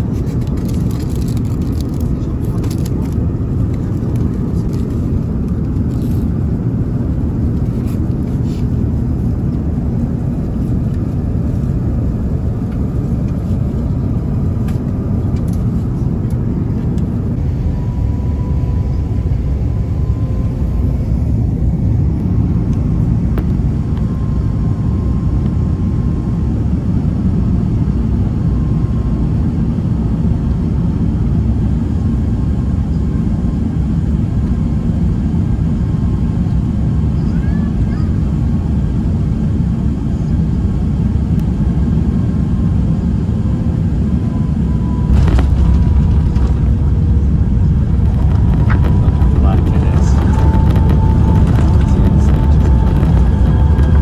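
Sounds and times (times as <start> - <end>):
aircraft engine rumble: 0.0 - 54.0
rushing airflow: 45.0 - 54.0.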